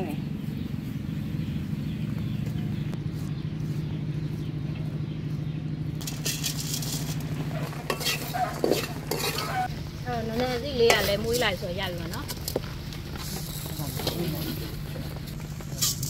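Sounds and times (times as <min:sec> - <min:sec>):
steady low hum: 0:00.0 - 0:16.0
seeds stirred in metal wok: 0:06.0 - 0:09.7, 0:13.2 - 0:16.0.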